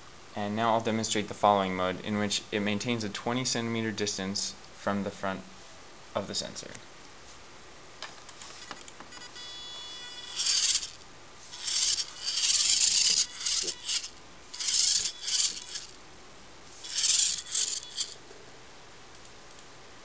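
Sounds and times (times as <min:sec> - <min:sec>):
faint electrical whine: 0:00.0 - 0:20.0
small motors whirring in spurts: 0:09.2 - 0:16.0, 0:16.7 - 0:18.2.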